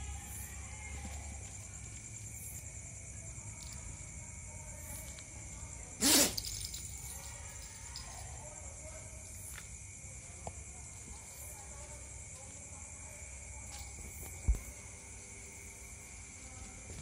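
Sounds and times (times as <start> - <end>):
dog sneezing: 6.0 - 6.6.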